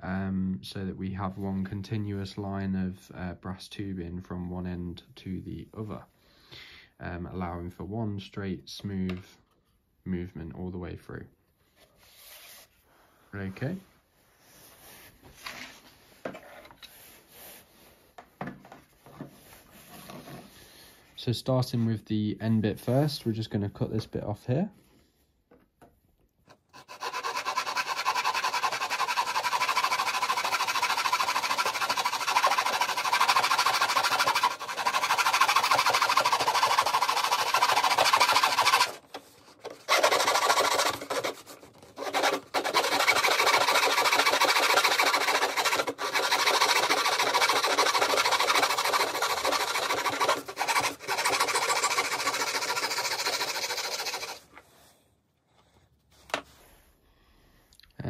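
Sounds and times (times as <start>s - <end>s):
saw cutting brass tube: 26.5s - 54.5s.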